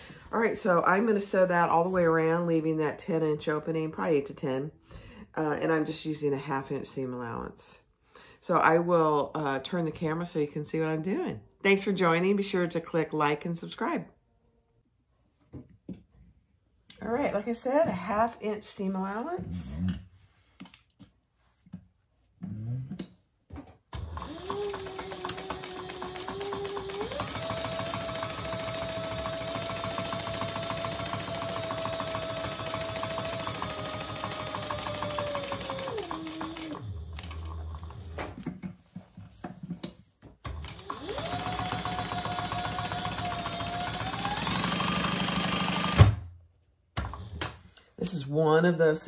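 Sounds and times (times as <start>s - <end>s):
industrial sewing machine stitching: 24.0s - 38.3s, 40.4s - 46.2s.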